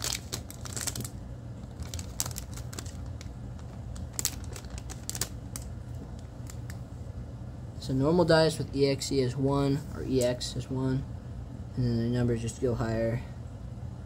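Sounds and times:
plastic bag crinkling: 0.0 - 6.8.

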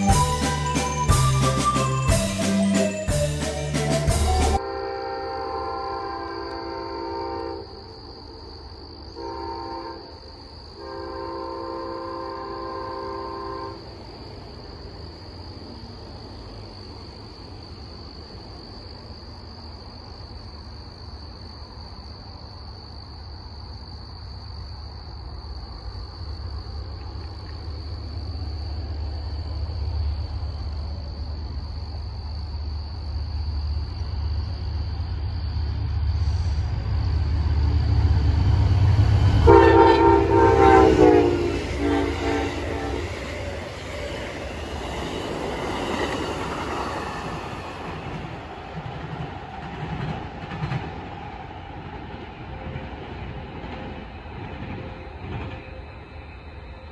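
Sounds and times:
train air horn blasts: 0.0 - 7.9, 9.1 - 13.9, 39.4 - 43.4
train engine and rail rumble: 0.0 - 56.9.

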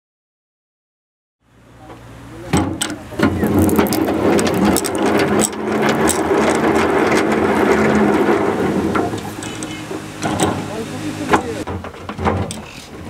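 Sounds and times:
hand-cranked extractor gears clattering: 2.8 - 12.8
steady drone: 3.1 - 11.7.

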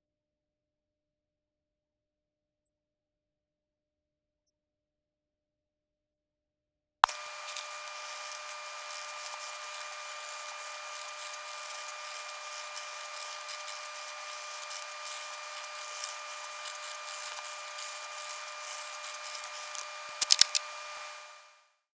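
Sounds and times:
marker drawing on paper: 7.4 - 20.6
sharp clicks: 12.1 - 21.1.

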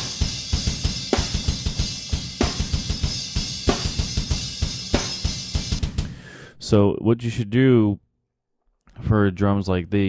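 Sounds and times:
hi-hat and cymbals: 0.0 - 6.1.

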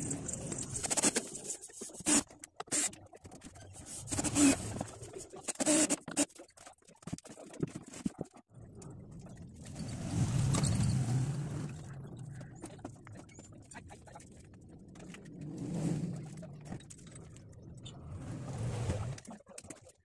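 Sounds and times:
road traffic passing: 9.0 - 12.5.

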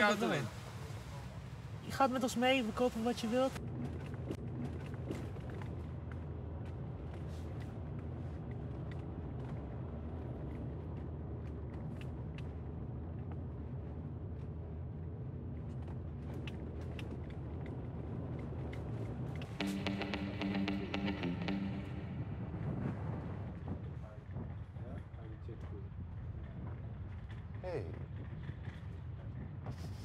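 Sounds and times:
car engine hum: 0.0 - 23.8
road noise: 0.0 - 27.6.

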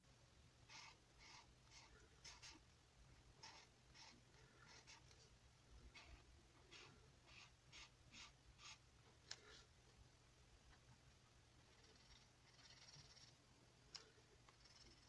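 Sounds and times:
marker scratching on paper: 0.7 - 2.6, 3.4 - 5.2, 5.9 - 8.8.

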